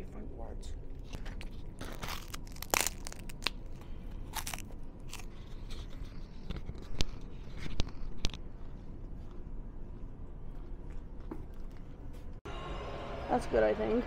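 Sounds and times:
crinkling handling noise: 0.9 - 9.4.

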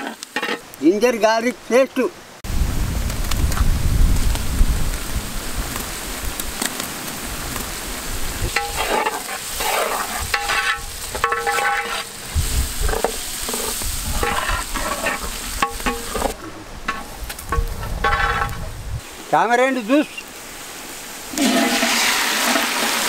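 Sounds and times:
metal ladle scraping pot: 0.0 - 0.7, 8.5 - 18.7, 21.3 - 23.0
food sizzling in hot oil: 3.2 - 23.0.

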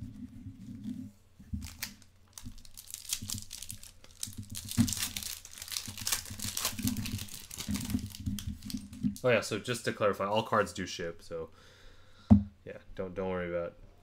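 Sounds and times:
foil wrapper crinkling and tearing: 1.6 - 9.3.

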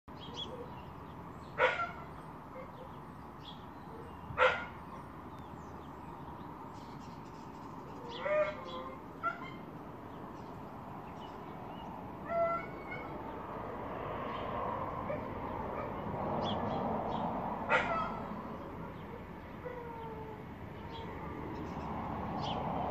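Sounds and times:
animal bark-like calls: 1.6 - 3.0, 4.0 - 5.1, 8.0 - 9.7, 12.2 - 13.4, 17.6 - 21.2.

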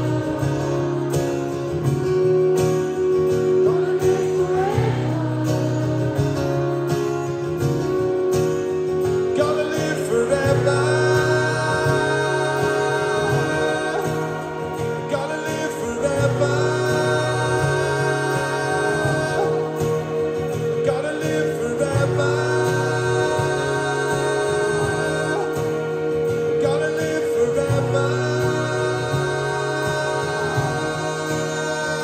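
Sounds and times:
guitar: 0.0 - 32.0
live rock band playing: 0.0 - 32.0
person singing long notes: 9.4 - 32.0.

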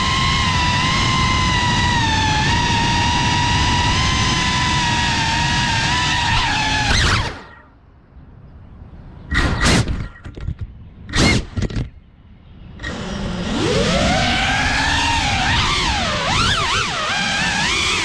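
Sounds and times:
drone motors whining: 0.0 - 7.8, 12.7 - 18.0.

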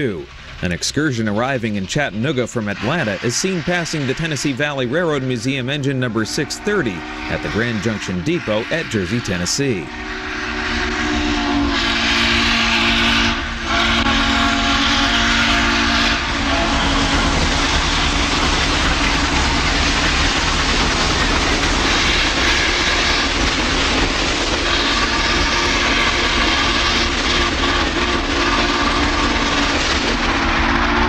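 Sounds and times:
steam locomotive running past: 0.0 - 31.0
steam locomotive whistle: 5.8 - 20.2, 21.0 - 31.0.

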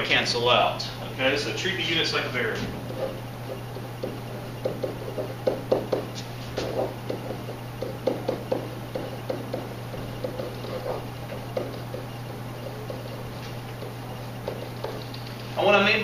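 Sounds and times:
low electrical hum: 0.0 - 16.0
stylus tapping on whiteboard: 3.0 - 15.4.

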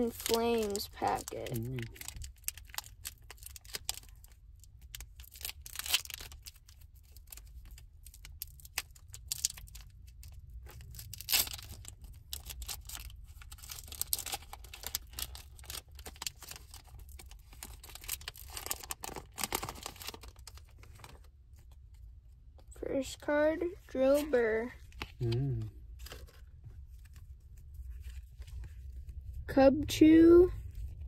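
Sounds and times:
cards rustling: 0.0 - 2.0, 24.0 - 29.0
foil wrapper tearing: 0.0 - 21.2.

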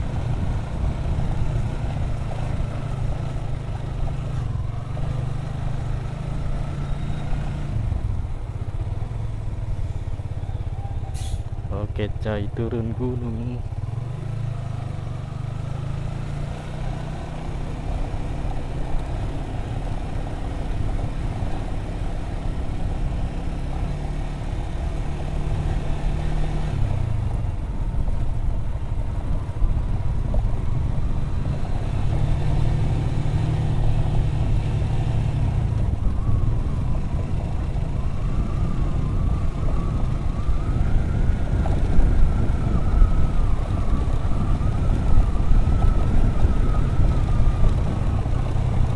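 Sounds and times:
wind rumble on microphone: 0.0 - 5.2, 24.5 - 48.9.

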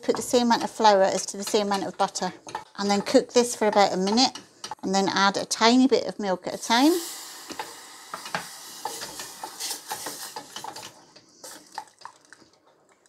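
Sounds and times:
spoon scraping and tapping pan: 0.0 - 4.9, 7.5 - 11.6
sizzling hiss: 6.5 - 11.7.

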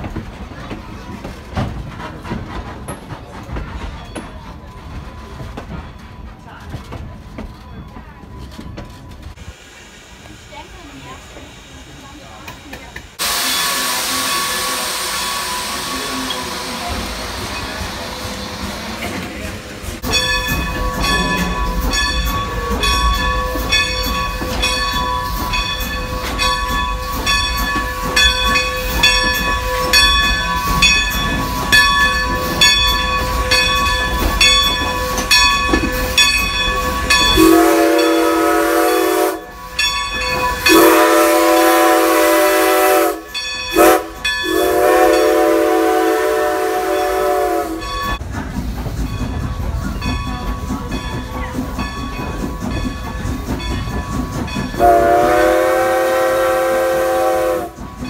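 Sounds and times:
steam locomotive rhythmic beat: 0.0 - 8.9, 10.5 - 58.0
steam whistle blasts: 37.4 - 39.5, 40.6 - 47.9, 54.8 - 57.9.

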